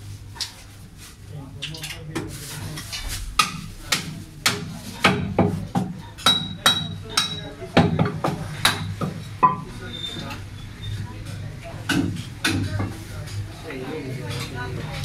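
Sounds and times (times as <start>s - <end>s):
cleaver chopping meat on wood: 3.4s - 9.2s.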